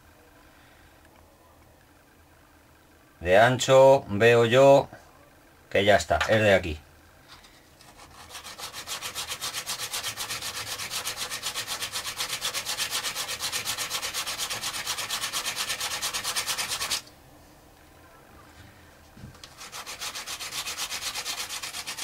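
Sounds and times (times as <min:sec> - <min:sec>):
carbon brush rubbing on abrasive: 0:07.8 - 0:17.0, 0:19.4 - 0:22.0.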